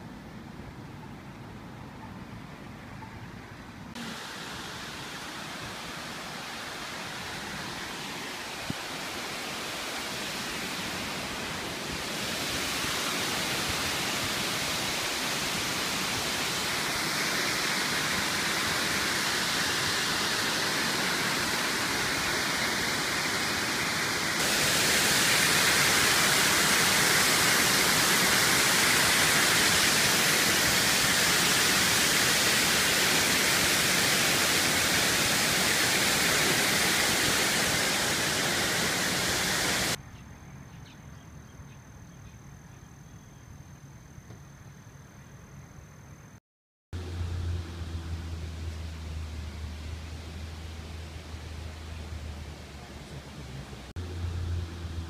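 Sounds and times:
waterfall rushing: 0:04.0 - 0:40.0.

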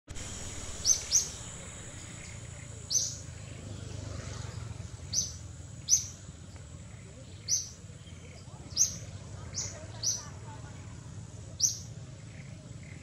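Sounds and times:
faint high whine: 0:00.1 - 0:09.8
birds chirping: 0:00.1 - 0:13.0.

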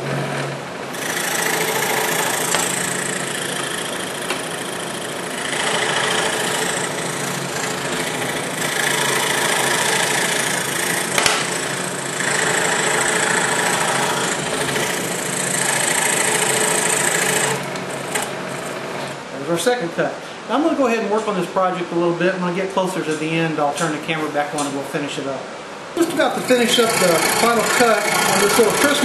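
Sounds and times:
scroll saw cutting wood: 0:00.0 - 0:19.2, 0:26.0 - 0:29.0.

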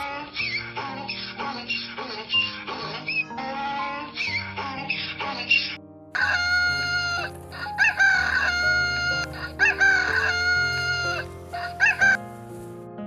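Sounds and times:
background music: 0:00.0 - 0:13.0
rooster crowing: 0:06.2 - 0:12.2.

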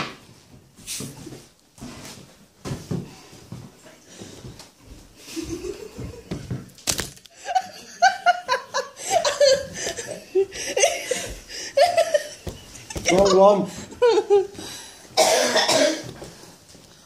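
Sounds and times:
hearty laughter: 0:05.2 - 0:06.4, 0:07.3 - 0:14.7.

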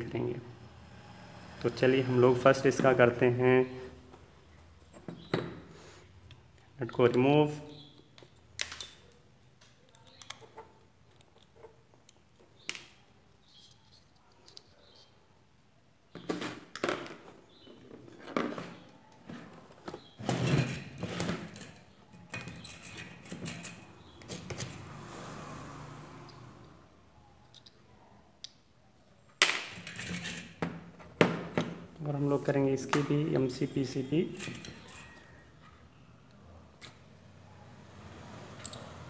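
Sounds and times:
parts clattering: 0:16.1 - 0:24.8, 0:29.4 - 0:35.4
clicks of small parts: 0:27.5 - 0:27.8.

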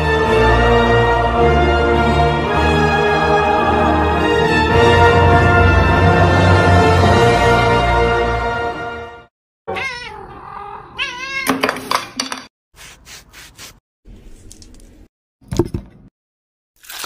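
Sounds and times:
music: 0:00.0 - 0:09.3
cat meowing and yowling: 0:09.7 - 0:11.6.

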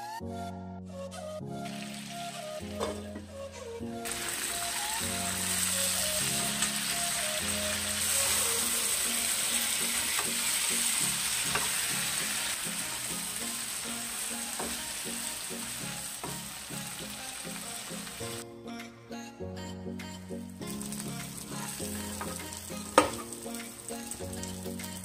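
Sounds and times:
vegetables sizzling in oil: 0:04.1 - 0:18.4, 0:20.7 - 0:25.0.

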